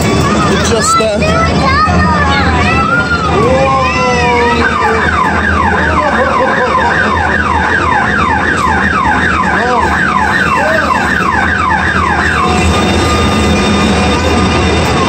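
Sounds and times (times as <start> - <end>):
electronic alarm yelping: 4.2 - 14.3.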